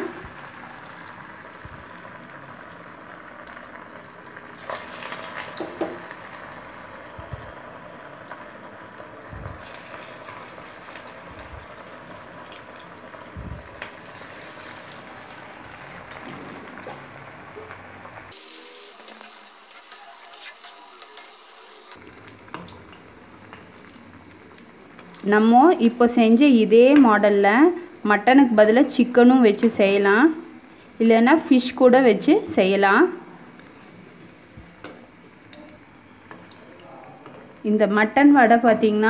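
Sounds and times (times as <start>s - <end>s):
oil sizzling and crackling: 0.0s - 25.3s.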